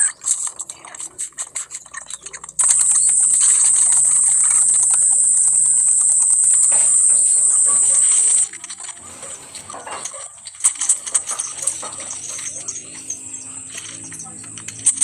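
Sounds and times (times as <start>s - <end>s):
high-pitched insect drone: 2.6s - 8.5s, 11.0s - 15.0s.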